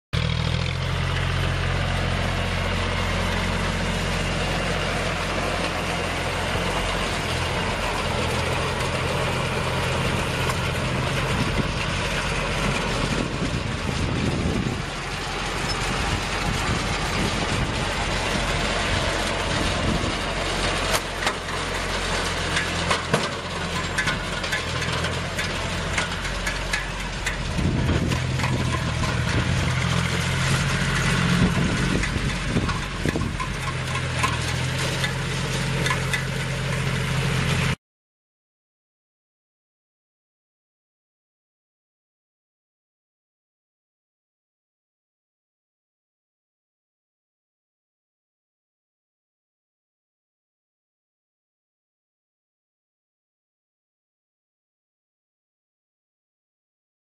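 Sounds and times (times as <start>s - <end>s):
tractor engine running: 0.2s - 37.8s.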